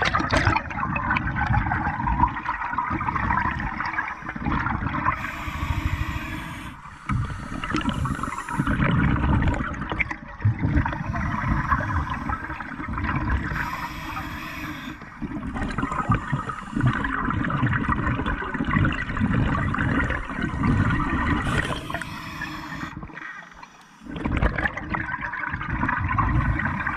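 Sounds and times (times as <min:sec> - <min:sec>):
bubbling exhaust bubbles: 0:00.0 - 0:23.2, 0:24.0 - 0:26.9
hissing regulator inhale: 0:03.1 - 0:09.6, 0:10.8 - 0:17.5, 0:19.3 - 0:24.2.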